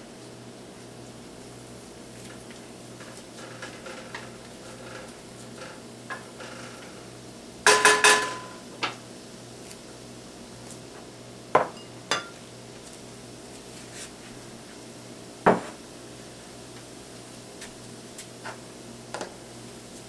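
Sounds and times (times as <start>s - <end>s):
dishes clinking and knocking: 7.7s - 8.6s, 11.6s - 12.4s, 15.5s - 15.8s.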